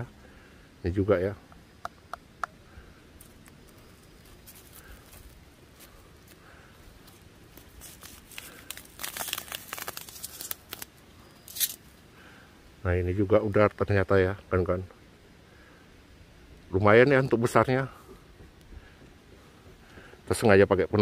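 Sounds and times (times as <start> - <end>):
leaves rustling: 2.7 - 12.6
foam mesh net crinkling: 4.0 - 11.8.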